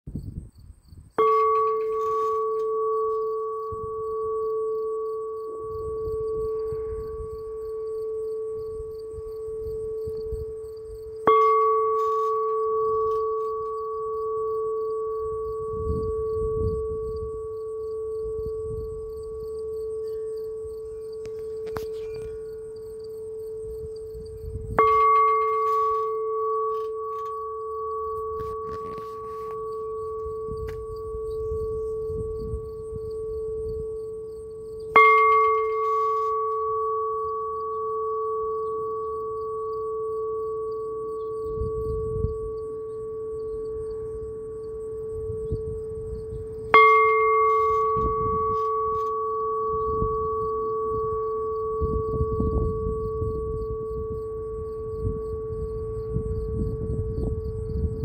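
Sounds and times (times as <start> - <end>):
metal bell clanging and ringing: 1.2 - 5.8, 11.2 - 17.1, 19.8 - 22.9, 23.9 - 32.9, 34.8 - 43.1, 46.3 - 54.1.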